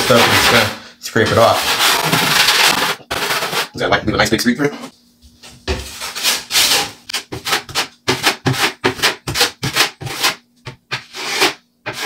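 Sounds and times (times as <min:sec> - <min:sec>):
taping knife scraping compound: 0:00.0 - 0:03.8, 0:05.9 - 0:12.0.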